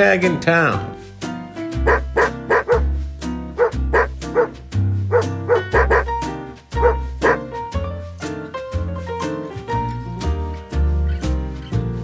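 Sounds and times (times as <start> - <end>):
background music with bass line: 0.0 - 12.0
dog barking: 1.8 - 2.9, 3.6 - 6.1, 6.8 - 7.5.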